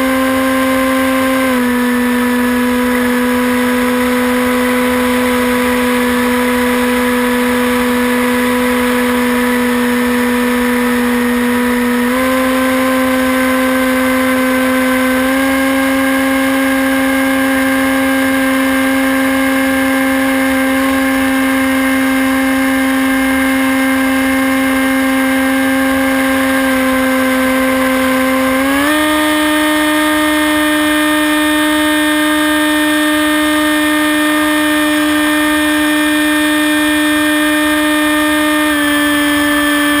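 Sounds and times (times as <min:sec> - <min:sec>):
electric motor and propeller whining: 0:00.0 - 0:40.0.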